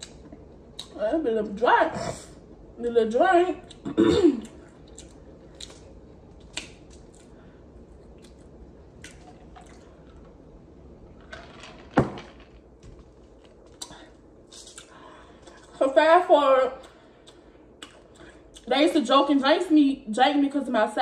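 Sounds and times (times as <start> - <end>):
person chewing biscuit: 3.7 - 10.3.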